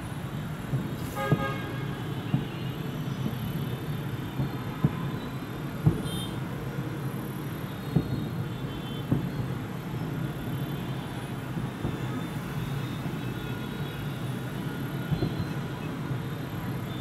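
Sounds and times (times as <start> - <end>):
sharp firework bangs: 0.7 - 5.2, 5.8 - 6.5, 7.8 - 9.6.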